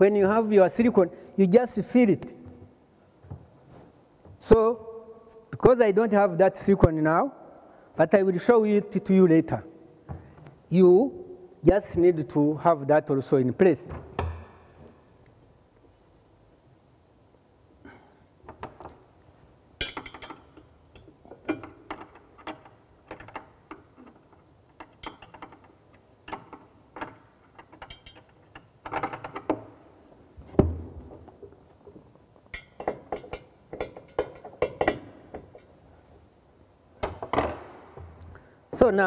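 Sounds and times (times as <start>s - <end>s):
ceramic knocks and clinks: 19.8s - 22.1s.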